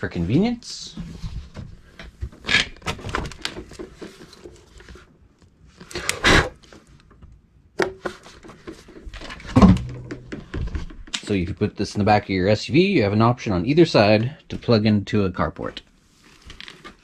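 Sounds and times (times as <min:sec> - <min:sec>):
bump on fridge: 0:09.6 - 0:10.6.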